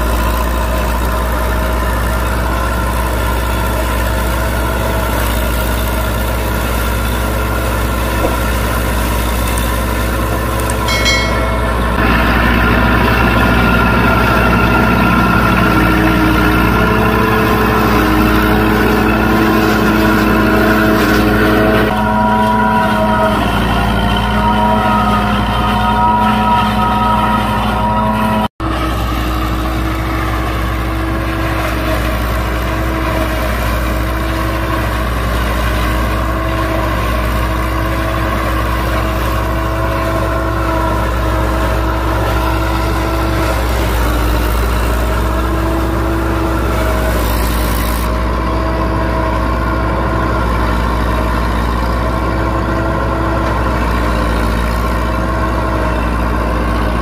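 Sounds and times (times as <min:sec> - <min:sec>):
tractor diesel engine running: 0:00.0 - 0:57.0
forage harvester chopping maize: 0:03.7 - 0:10.9.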